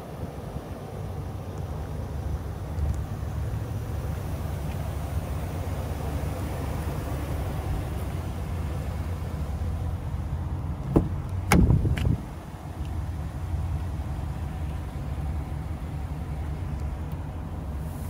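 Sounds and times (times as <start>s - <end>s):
car door clunking open: 10.8s - 12.2s.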